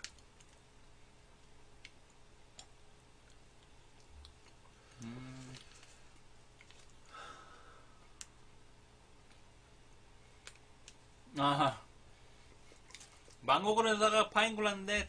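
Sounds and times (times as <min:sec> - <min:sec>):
people quietly eating: 0:03.2 - 0:07.2
person humming: 0:04.9 - 0:05.7.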